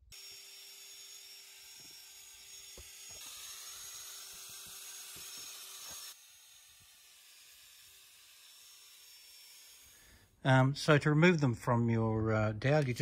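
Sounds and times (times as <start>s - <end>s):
cordless drill whining: 0.1s - 10.4s.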